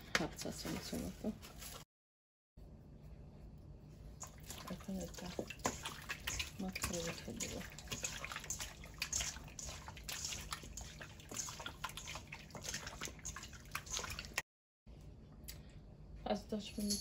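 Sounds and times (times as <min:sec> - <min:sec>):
steady low hum: 0:02.6 - 0:17.0
wet squelching of raw meat: 0:04.2 - 0:14.4.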